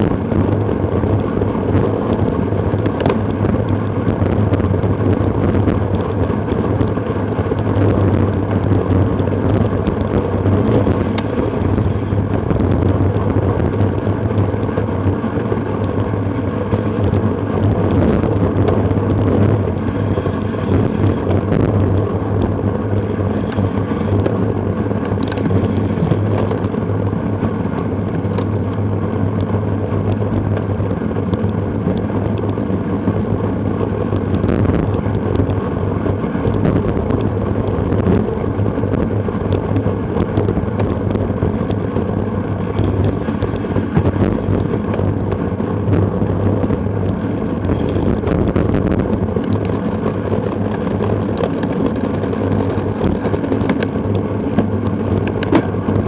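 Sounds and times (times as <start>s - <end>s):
bicycle road noise: 0.0s - 56.0s
wind noise on microphone: 0.0s - 56.0s.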